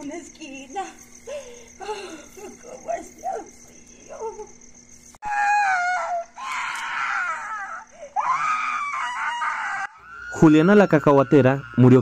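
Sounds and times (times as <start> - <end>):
woman screaming: 5.2 - 10.4.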